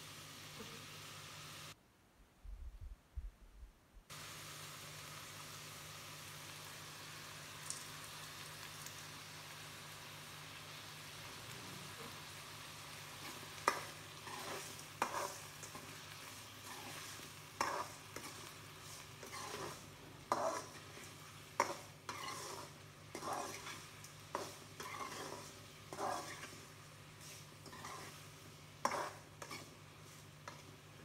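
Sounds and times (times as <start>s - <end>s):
vegetables frying sizzle: 0.0s - 1.8s, 4.1s - 31.0s
utensil scraping pan: 13.2s - 15.9s, 16.6s - 30.7s.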